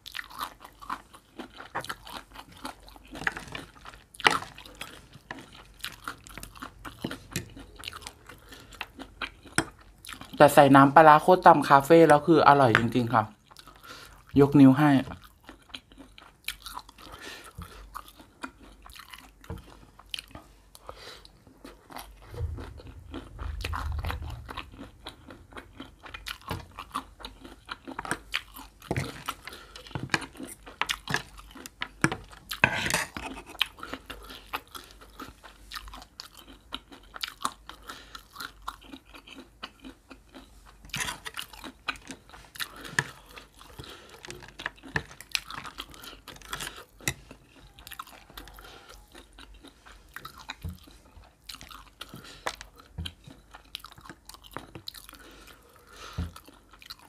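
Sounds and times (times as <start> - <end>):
crunchy chewing: 0.0 - 10.4, 15.1 - 57.0
low rumble: 22.2 - 26.4.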